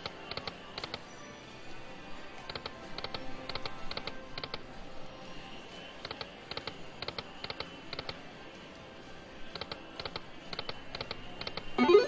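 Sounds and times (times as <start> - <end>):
steady background noise: 0.0 - 12.0
slot machine reels clicking: 11.8 - 12.0.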